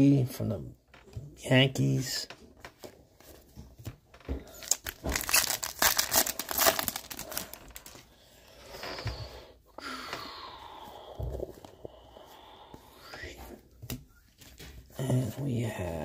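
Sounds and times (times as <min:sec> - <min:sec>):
plastic wrapper crinkling and tearing: 0:04.5 - 0:08.1.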